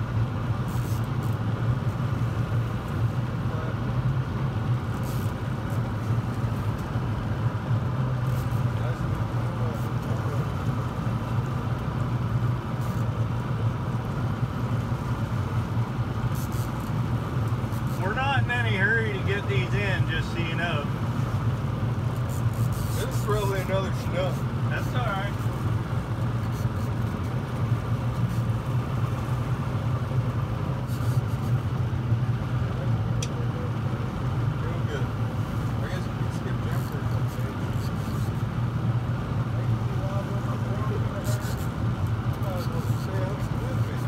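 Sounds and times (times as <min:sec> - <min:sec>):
boat engine humming: 0:00.0 - 0:44.0
wind and water noise: 0:00.0 - 0:44.0.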